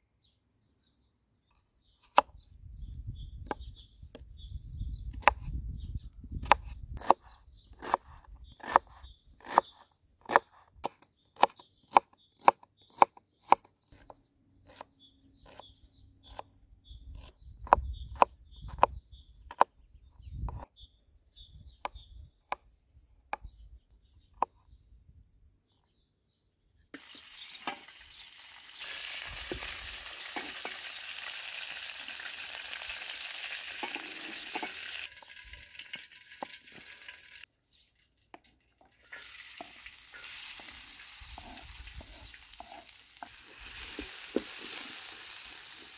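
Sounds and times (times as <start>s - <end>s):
knife chopping on wooden board: 6.4s - 14.8s
meat sizzling in hot oil: 27.0s - 37.4s, 39.0s - 45.9s.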